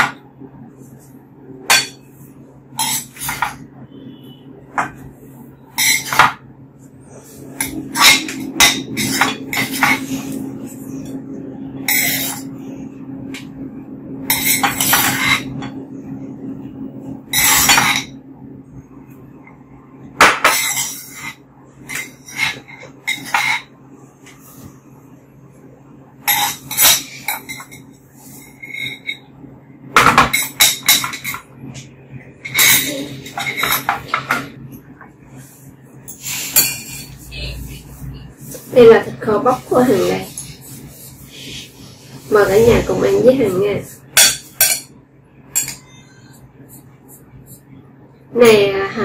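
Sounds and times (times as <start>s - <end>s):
steady low hum: 0.0s - 49.0s
metal utensils clinking on pot and plate: 5.7s - 6.4s, 20.4s - 23.7s, 26.2s - 29.2s, 32.4s - 34.4s, 45.5s - 46.0s.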